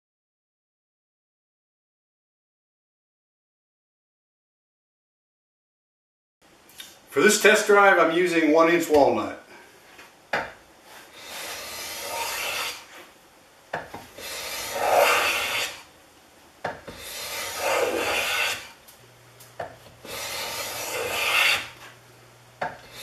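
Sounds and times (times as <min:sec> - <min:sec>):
plane shaving wood: 0:11.1 - 0:13.0, 0:14.2 - 0:15.8, 0:16.9 - 0:18.8, 0:20.0 - 0:22.0.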